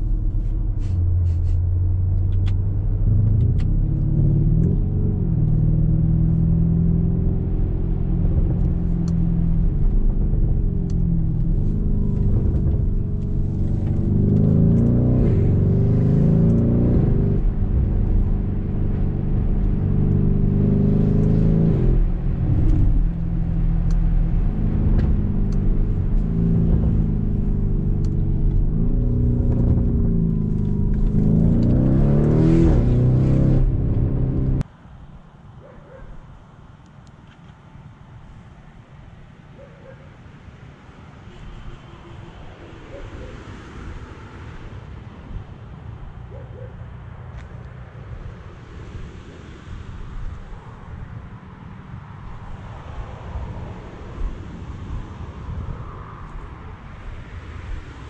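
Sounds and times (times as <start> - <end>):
engine accelerating through gears: 0.8 - 34.6.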